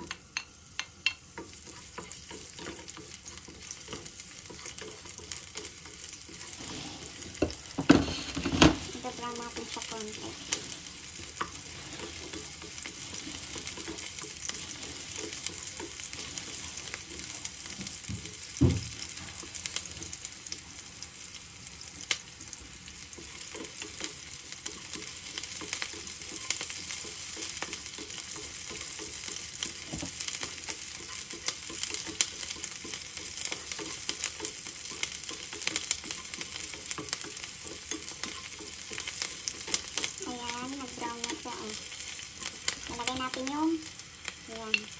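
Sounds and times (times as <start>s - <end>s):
onions sizzling in hot oil: 0.0s - 44.9s
wooden spatula scraping pan: 1.4s - 20.2s
dull thump: 18.6s - 18.9s.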